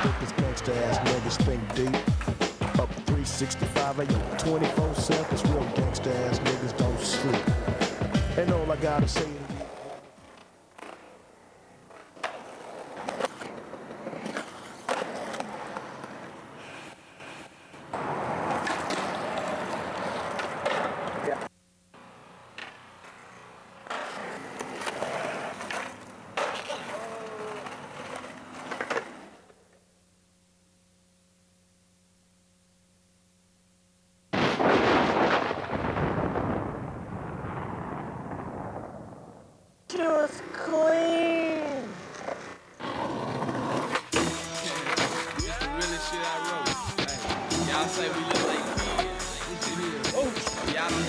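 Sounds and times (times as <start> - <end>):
skateboard trucks grinding concrete: 0.0 - 21.5, 23.8 - 29.5, 40.4 - 51.0
skateboard wheels rolling on pavement: 0.0 - 29.8, 40.1 - 49.0
skateboard clacks: 11.8 - 21.5, 23.8 - 29.6, 41.9 - 45.5, 48.1 - 48.9
faint steady hum: 15.6 - 24.6, 26.0 - 34.4.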